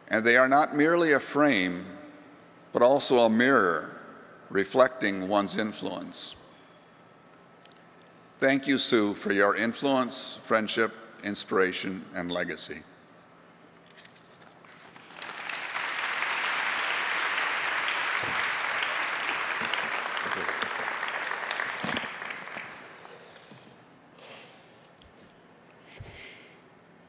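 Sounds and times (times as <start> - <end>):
audience applauding: 14.8 - 23.5.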